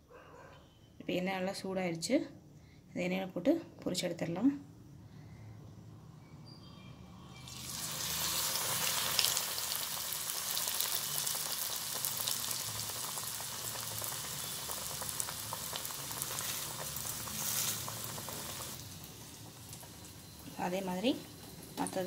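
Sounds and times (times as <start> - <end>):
food sizzling in hot oil: 7.3 - 22.0.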